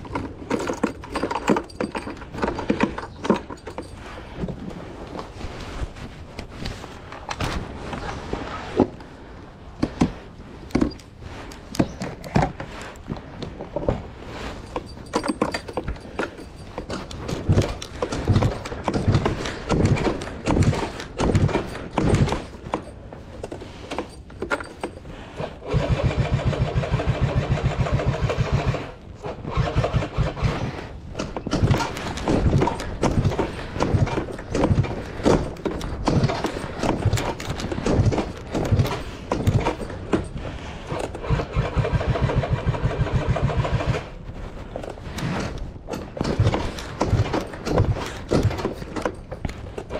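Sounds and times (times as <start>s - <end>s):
two-stroke engine cranking: 23.9s - 44.2s.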